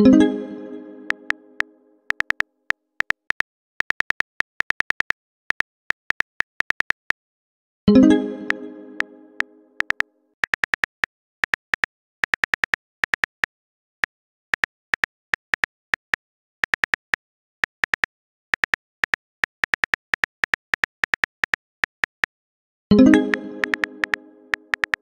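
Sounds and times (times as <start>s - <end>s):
phone keyboard taps: 2.1s - 2.4s, 3.0s - 7.2s.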